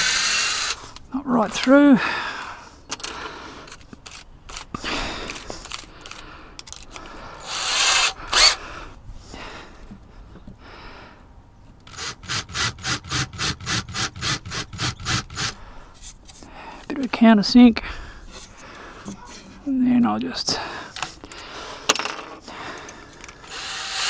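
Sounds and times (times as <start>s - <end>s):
cordless drill drilling: 0.0s - 0.9s, 7.4s - 8.6s, 11.9s - 15.6s, 23.4s - 24.0s
clicks and rubbing: 2.9s - 7.1s.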